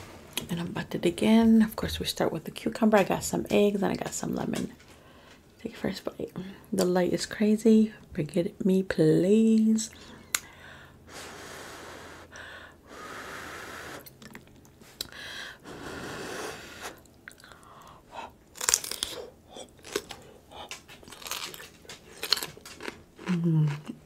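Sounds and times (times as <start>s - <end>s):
breathy mouth sounds: 11.6s - 18.4s
chewing crunchy cucumber: 18.5s - 24.0s.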